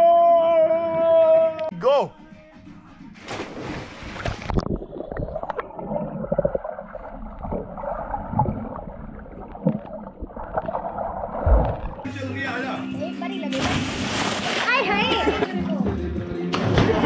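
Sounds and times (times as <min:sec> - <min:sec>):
dull thuds of swimmers kicking: 0:03.2 - 0:04.6, 0:13.5 - 0:15.4, 0:16.5 - 0:17.0
people splashing into a pool: 0:03.2 - 0:05.9, 0:13.5 - 0:15.5, 0:16.5 - 0:17.0
underwater bubbles gurgling: 0:04.2 - 0:12.1.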